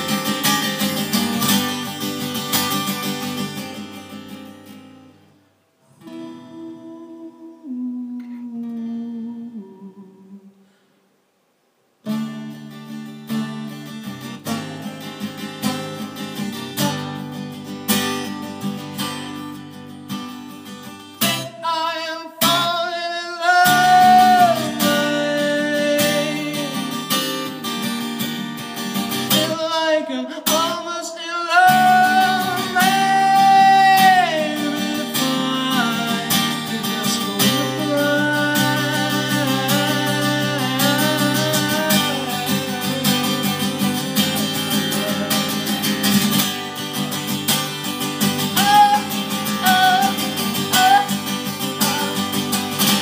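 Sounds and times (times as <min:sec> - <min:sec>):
man singing: 0:00.0 - 0:02.0, 0:05.9 - 0:10.6, 0:13.4 - 0:17.4, 0:21.2 - 0:27.7, 0:29.2 - 0:46.7, 0:48.2 - 0:53.0
acoustic guitar: 0:00.0 - 0:53.0.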